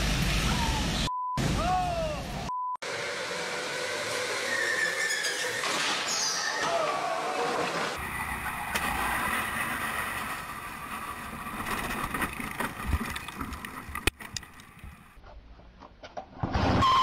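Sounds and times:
kart engine buzzing: 0:02.8 - 0:06.7, 0:07.6 - 0:13.4
kart knocking and rattling: 0:04.8 - 0:15.1.

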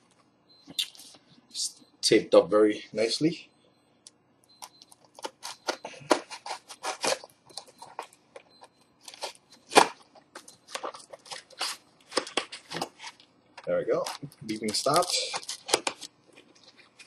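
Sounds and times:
knife slicing packing tape: 0:05.2 - 0:07.2.

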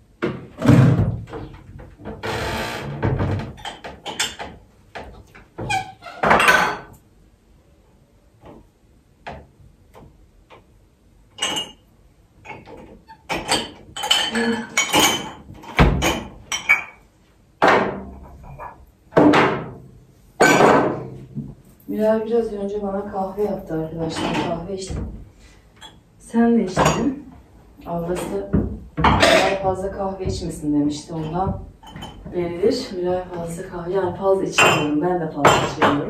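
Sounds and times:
dishes clinking and clattering: 0:03.5 - 0:04.6, 0:06.2 - 0:07.0, 0:11.4 - 0:17.0, 0:20.4 - 0:21.2, 0:29.0 - 0:29.8, 0:31.2 - 0:32.3, 0:34.5 - 0:36.0.

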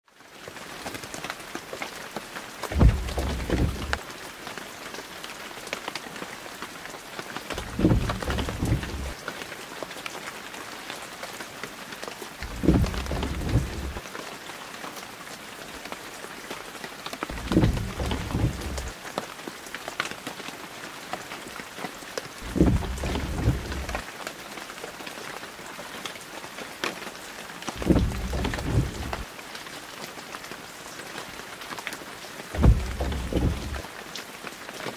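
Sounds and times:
rain hiss: 0:00.3 - 0:34.9
low rumble: 0:02.8 - 0:04.0, 0:07.6 - 0:09.2, 0:12.4 - 0:14.0, 0:17.3 - 0:18.9, 0:22.4 - 0:24.0, 0:27.8 - 0:29.2, 0:32.6 - 0:33.8.

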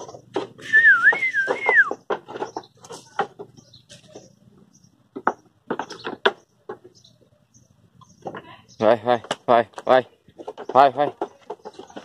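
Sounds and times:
knocks on wooden boards: 0:00.0 - 0:04.3, 0:05.1 - 0:07.0, 0:09.2 - 0:12.0
wavering high whistle: 0:00.6 - 0:02.0.

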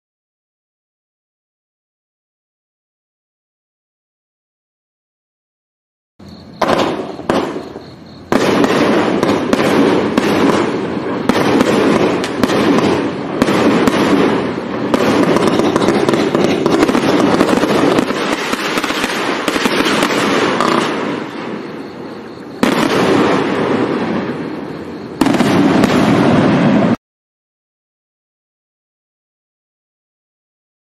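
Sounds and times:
fireworks barrage: 0:06.4 - 0:27.0.

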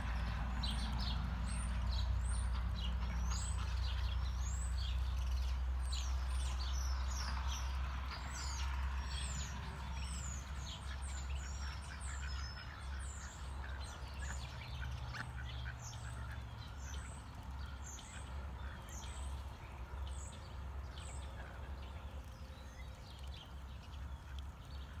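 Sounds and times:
songbirds chirping: 0:00.0 - 0:25.0.

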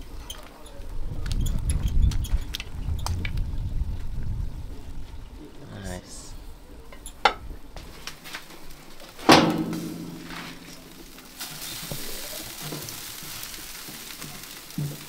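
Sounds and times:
chicken sizzling on a grill: 0:07.8 - 0:15.0
sharp metal clang: 0:09.3 - 0:10.6.

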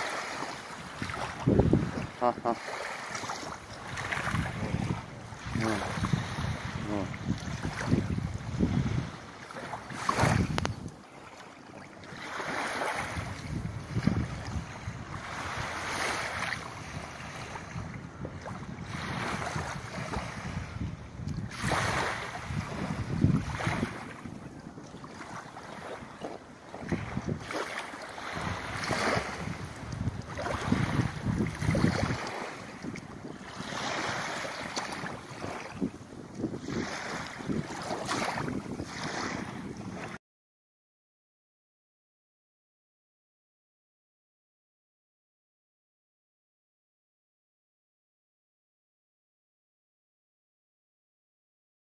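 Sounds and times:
water lapping at shore: 0:00.0 - 0:40.2
wind buffeting microphone: 0:00.1 - 0:11.2, 0:12.1 - 0:40.2.

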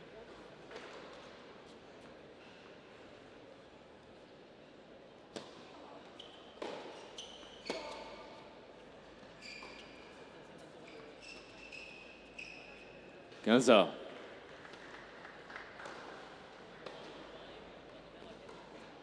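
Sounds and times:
shoes squeaking on court: 0:06.1 - 0:08.2, 0:09.3 - 0:13.0.

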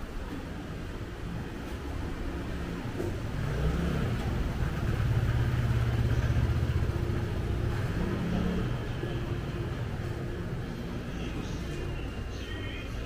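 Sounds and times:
street noise: 0:00.0 - 0:13.0
vehicle engine running: 0:02.5 - 0:11.6.

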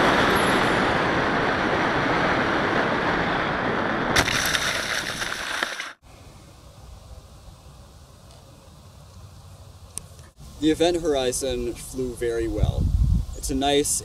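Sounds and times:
rushing wind noise: 0:00.0 - 0:05.9, 0:10.4 - 0:14.0
faint outdoor background: 0:05.9 - 0:14.0.

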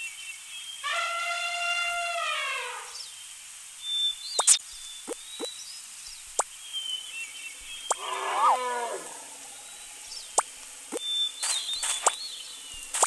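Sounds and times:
cartoon animal call: 0:08.0 - 0:09.2.

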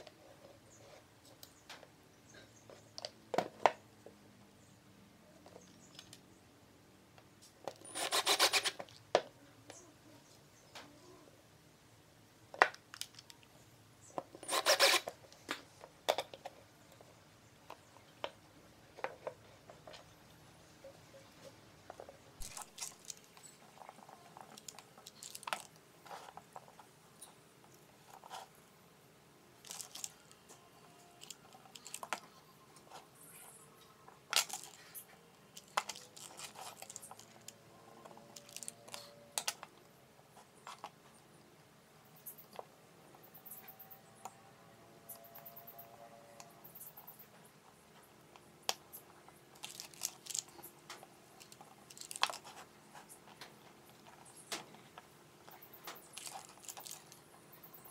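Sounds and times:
screwdriver scraping screw into board: 0:07.8 - 0:08.8, 0:14.4 - 0:15.1.

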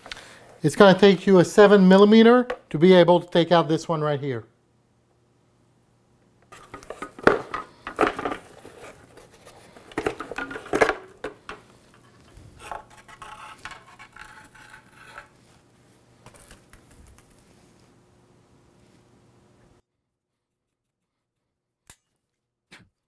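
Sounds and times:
plastic parts rubbing and rattling: 0:06.5 - 0:15.3
hard plastic parts clacking: 0:06.6 - 0:08.9, 0:09.8 - 0:14.3.

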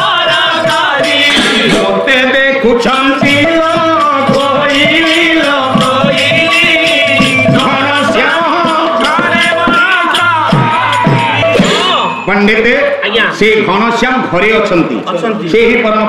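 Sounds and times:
man singing devotional melody: 0:00.0 - 0:11.5
rhythmic percussion: 0:00.0 - 0:16.0.

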